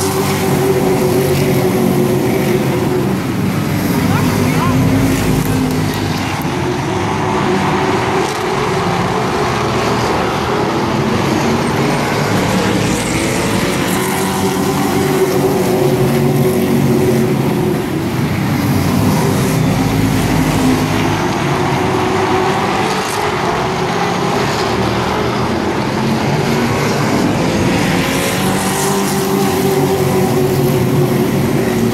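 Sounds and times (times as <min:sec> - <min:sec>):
racing truck engines: 0:00.0 - 0:31.9.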